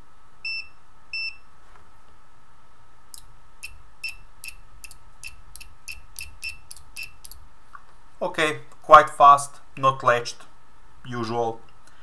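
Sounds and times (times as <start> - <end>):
multimeter clicks and chirps: 3.1 - 7.4
multimeter short beeps: 3.6 - 7.2.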